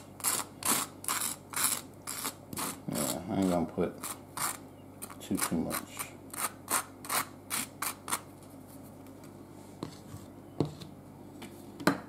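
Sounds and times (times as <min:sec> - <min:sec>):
knife scraping butter on toast: 0:00.0 - 0:08.3.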